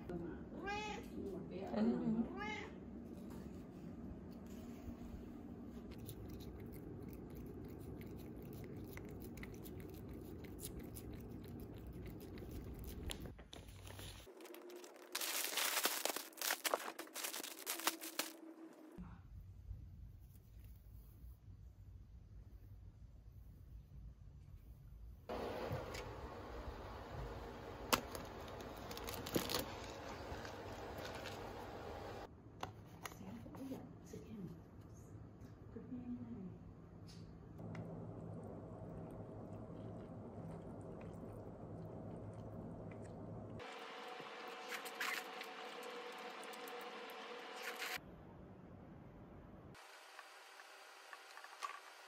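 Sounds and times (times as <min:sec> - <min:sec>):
cat licking: 0:05.9 - 0:13.3, 0:39.0 - 0:43.3
paper wrapping rustling: 0:13.2 - 0:18.6, 0:27.9 - 0:31.6
steady low hum: 0:36.4 - 0:49.8.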